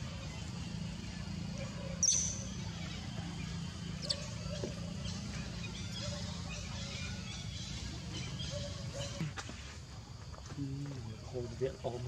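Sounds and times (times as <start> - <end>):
low background hum: 0.0 - 12.0
high-pitched animal squeaks: 2.0 - 2.8.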